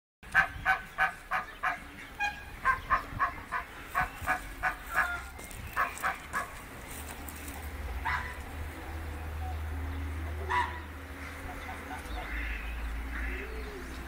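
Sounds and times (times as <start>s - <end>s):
geese honking: 0.3s - 6.8s, 10.2s - 14.0s.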